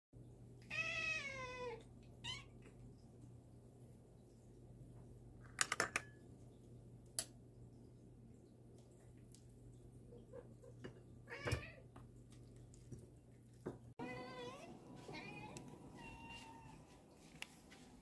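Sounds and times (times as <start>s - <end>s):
cat meowing: 0.7s - 2.6s.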